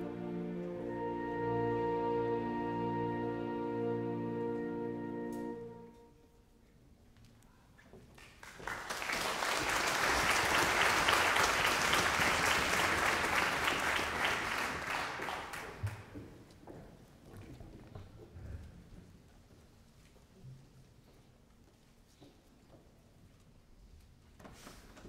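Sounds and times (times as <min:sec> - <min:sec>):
audience applauding: 0:08.2 - 0:16.2.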